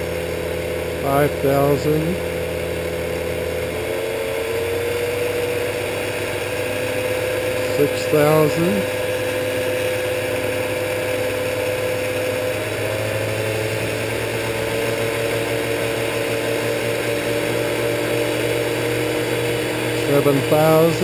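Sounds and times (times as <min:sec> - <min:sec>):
motor humming and whining: 0:00.0 - 0:21.0.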